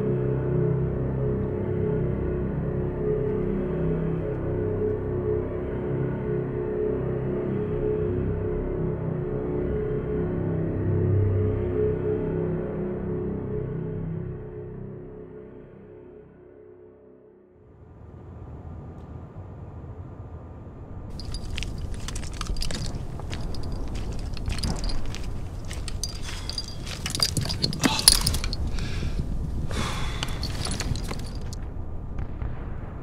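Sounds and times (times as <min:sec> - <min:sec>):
footsteps crunching on gravel: 0:21.1 - 0:31.6.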